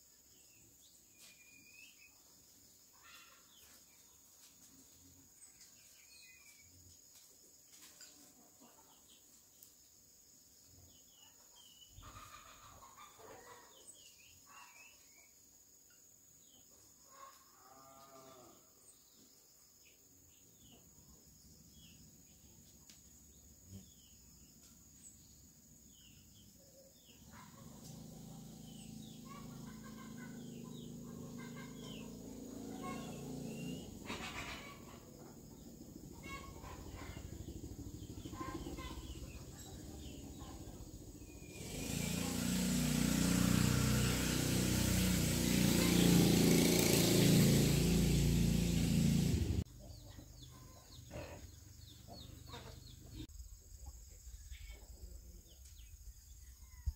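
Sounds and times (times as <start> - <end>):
small birds chirping: 0.0 - 17.4, 18.9 - 56.9
farm animal call: 2.9 - 3.8, 11.9 - 14.9, 17.1 - 18.8, 26.8 - 53.2.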